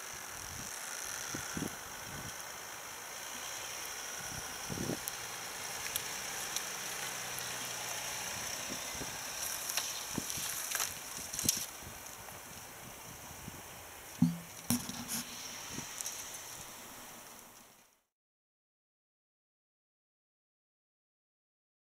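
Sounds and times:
diesel engine running: 0.7s - 11.4s
snow and stalks crunching: 5.0s - 12.5s.

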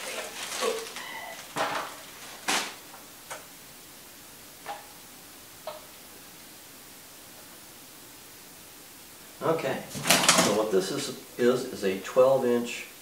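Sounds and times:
plastic packaging crinkling: 0.0s - 2.9s.

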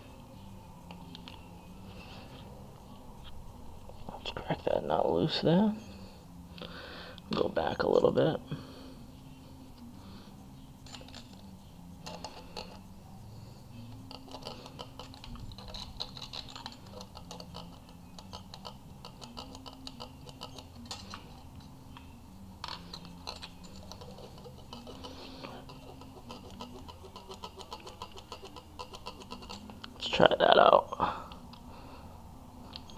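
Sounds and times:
metallic tool clicks and scrapes: 10.8s - 12.8s, 13.8s - 30.0s.

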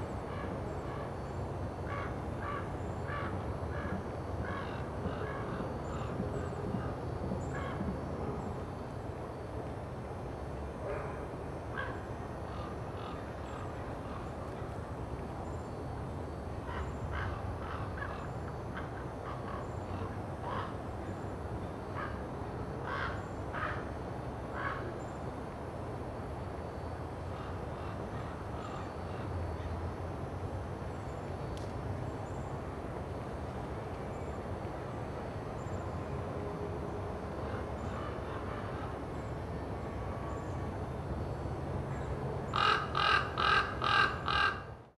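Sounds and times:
crows cawing: 18.9s - 20.8s, 22.8s - 23.8s, 42.5s - 44.8s.

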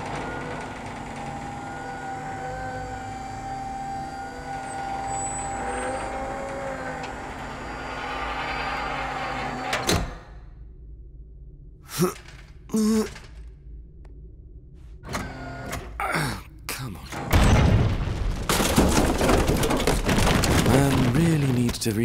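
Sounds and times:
lift stopping clunk: 0.0s - 10.2s
motorized lift whirring hum: 0.0s - 11.0s, 12.2s - 16.0s.

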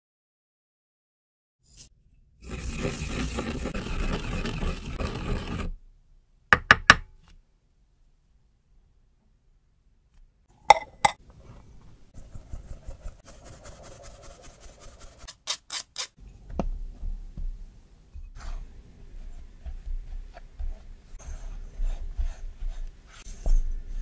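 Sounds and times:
spatula scraping glass bowl: 2.4s - 5.7s.

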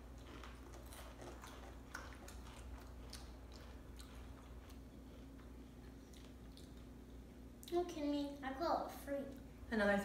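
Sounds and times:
crunching and chewing chips: 0.0s - 7.8s.

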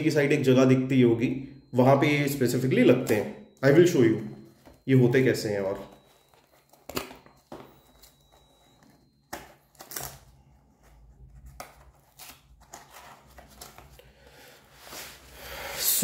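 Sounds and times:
packaging rustling: 5.7s - 14.1s.

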